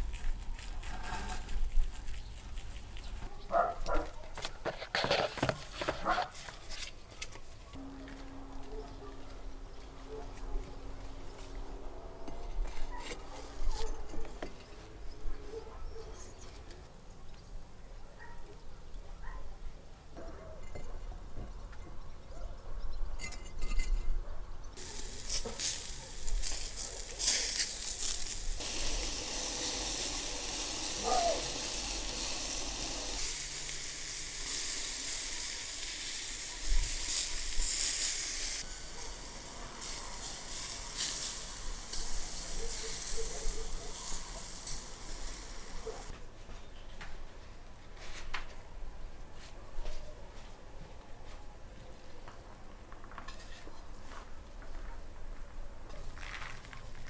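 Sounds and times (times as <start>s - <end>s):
kebabs sizzling over charcoal: 0.0s - 4.0s, 24.8s - 46.1s.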